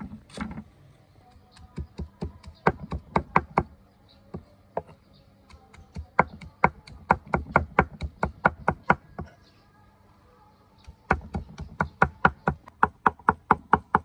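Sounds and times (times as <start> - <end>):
cleaver chopping on wooden block: 5.5 - 9.3.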